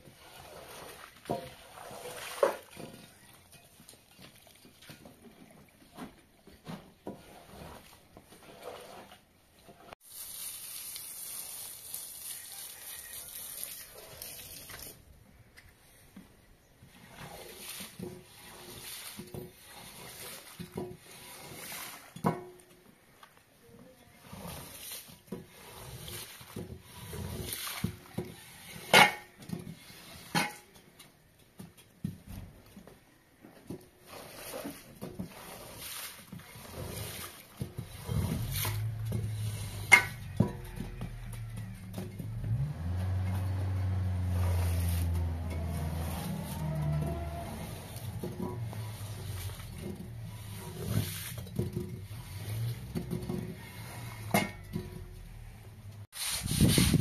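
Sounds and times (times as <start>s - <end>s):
broom scrubbing wet carpet: 0.0s - 2.9s, 7.1s - 9.2s, 9.8s - 14.9s, 16.8s - 22.2s, 24.1s - 30.4s, 34.0s - 54.7s, 55.4s - 57.0s
water hissing from hose: 10.0s - 15.0s, 17.0s - 22.2s, 34.1s - 40.3s, 42.5s - 51.4s.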